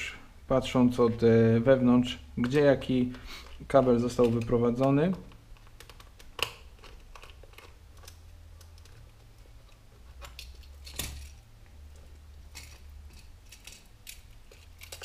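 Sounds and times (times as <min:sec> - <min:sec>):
low steady hum: 0:00.0 - 0:15.0
cable plugs clicking: 0:02.4 - 0:11.3.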